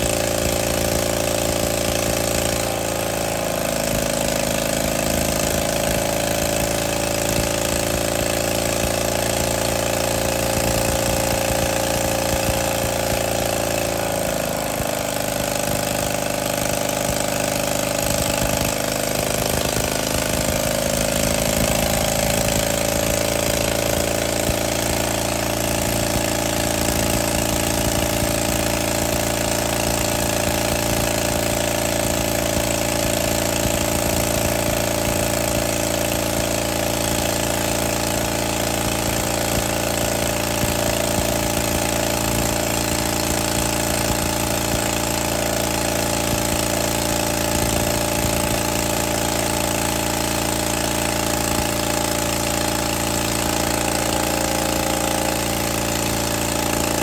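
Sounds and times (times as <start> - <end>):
diesel engine running flat out: 0.0 - 57.0.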